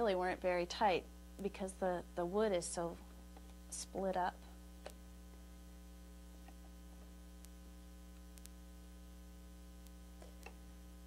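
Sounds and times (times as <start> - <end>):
electrical mains hum: 0.0 - 11.0
faint ticks: 6.4 - 8.6, 9.8 - 10.7.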